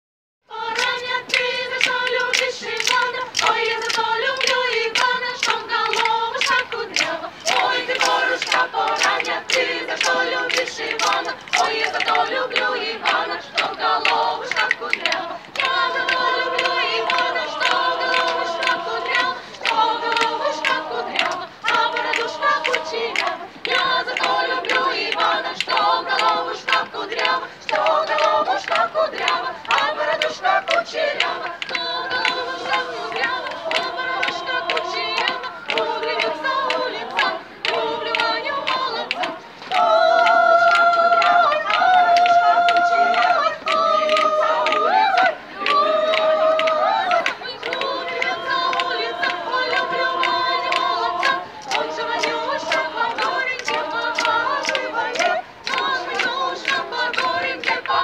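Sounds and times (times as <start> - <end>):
women and girls singing a cappella: 0.4 - 58.0
hand claps: 0.7 - 58.0.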